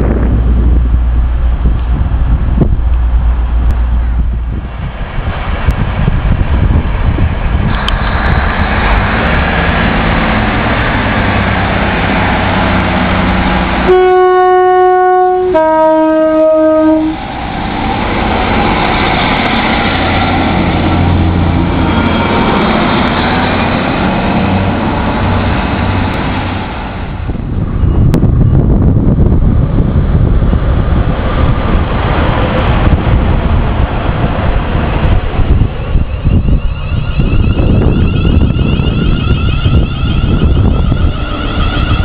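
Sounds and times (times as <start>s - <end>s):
diesel train engines running: 0.0s - 42.0s
two-tone train horn: 13.8s - 17.2s, 36.6s - 42.0s.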